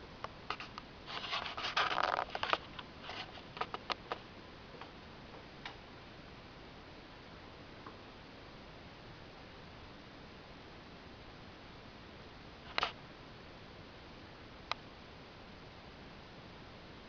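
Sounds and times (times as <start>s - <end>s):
guinea pigs rustling: 0.5s - 5.0s.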